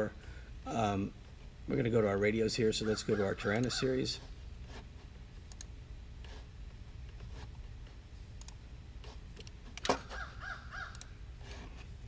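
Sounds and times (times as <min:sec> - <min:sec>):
low steady hum: 0:00.0 - 0:12.0
computer mouse clicking: 0:05.5 - 0:05.7, 0:09.4 - 0:09.9, 0:10.9 - 0:11.1.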